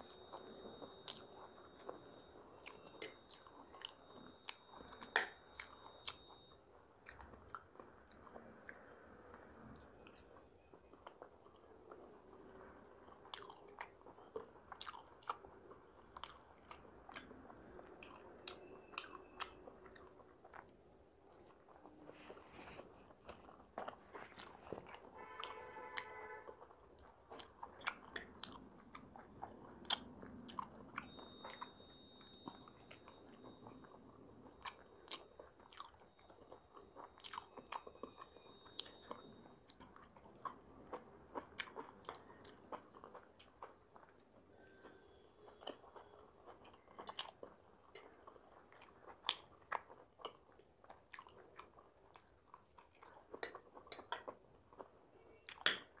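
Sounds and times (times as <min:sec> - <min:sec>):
chewing and biting food: 0:00.0 - 0:56.0.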